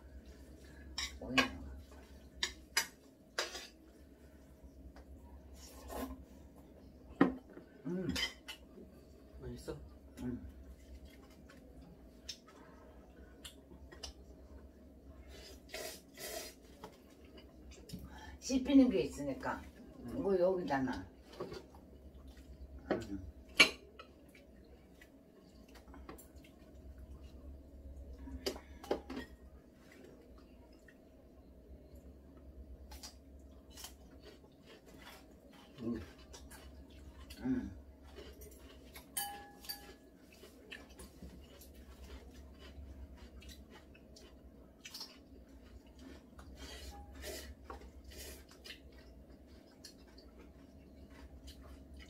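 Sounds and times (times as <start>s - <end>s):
faint steady hum: 0.0s - 52.0s
eating noodles: 15.2s - 17.8s, 32.9s - 52.0s
chopsticks clinking against bowls: 38.1s - 42.2s.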